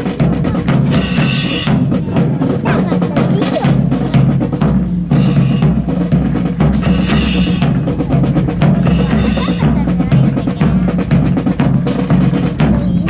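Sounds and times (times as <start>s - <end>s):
marching bass and snare drums: 0.0s - 13.0s.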